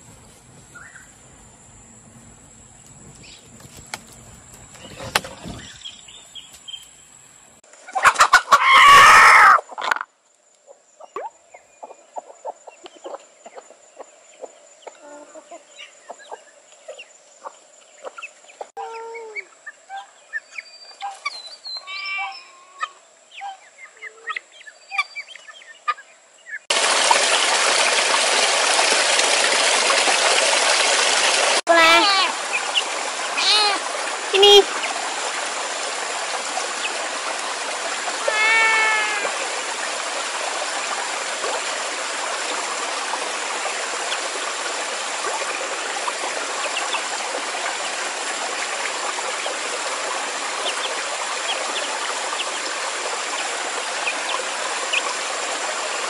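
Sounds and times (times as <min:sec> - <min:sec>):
water rushing over rocks: 0:00.0 - 0:06.8, 0:26.7 - 0:56.0
chickens clucking: 0:07.9 - 0:08.6.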